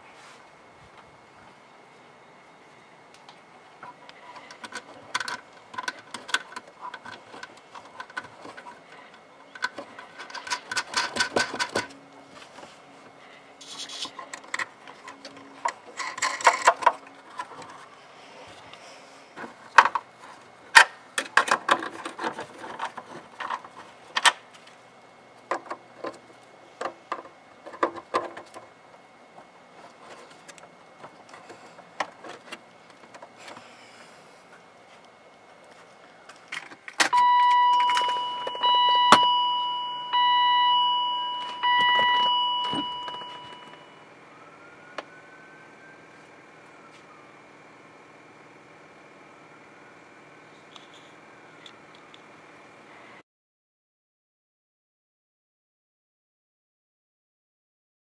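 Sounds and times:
plastic clicks and rattles: 4.4s - 8.8s.

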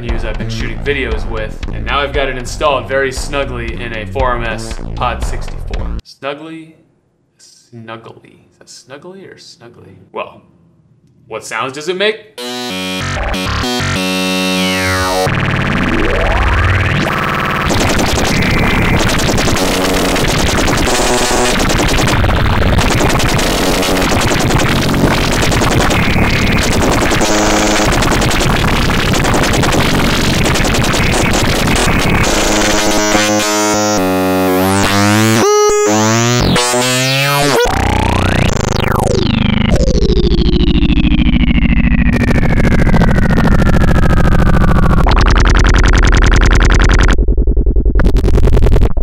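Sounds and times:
buzzy synthesizer tone: 12.4s - 49.0s
harsh chaotic synthesizer noise: 12.4s - 49.0s.

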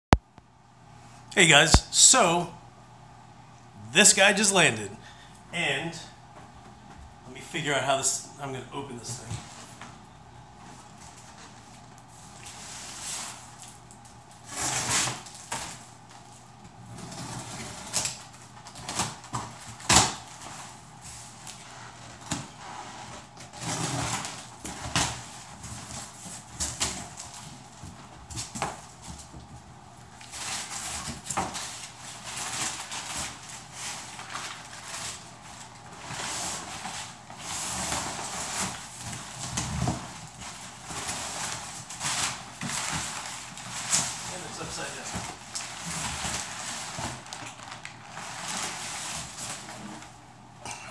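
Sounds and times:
cardboard rustling and scraping: 30.2s - 50.2s.

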